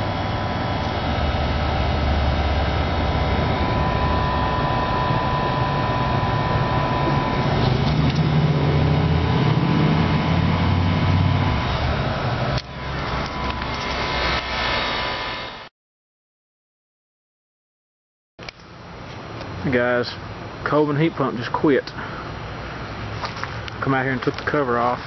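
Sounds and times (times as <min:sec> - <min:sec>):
thin steady tone: 0:00.0 - 0:15.5
machine drone with low rumble: 0:00.0 - 0:15.7.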